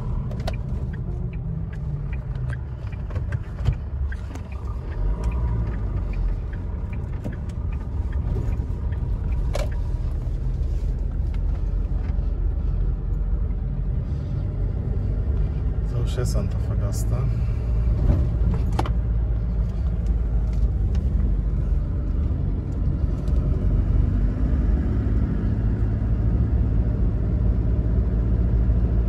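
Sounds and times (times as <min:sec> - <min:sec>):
light ticking: 0:00.0 - 0:11.8
car engine and tyres rumbling: 0:00.0 - 0:29.0.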